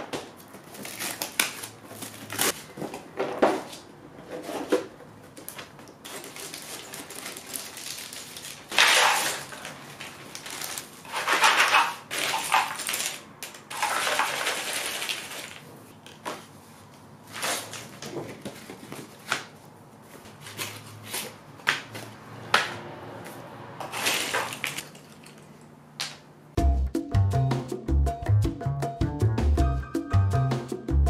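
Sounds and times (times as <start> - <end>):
jigsaw pieces rattling in box: 6.1 - 15.7
cardboard pieces set down: 23.8 - 25.5.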